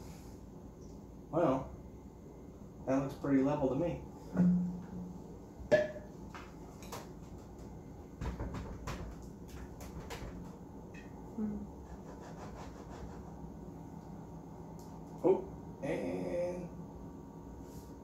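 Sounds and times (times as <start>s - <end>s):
hands tapping and rubbing counter: 6.3s - 10.6s
man murmuring: 15.2s - 16.8s.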